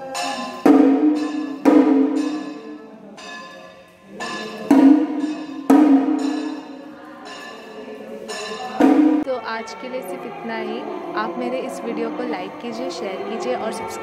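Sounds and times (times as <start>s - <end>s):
large metal bell ringing: 0.0s - 9.8s.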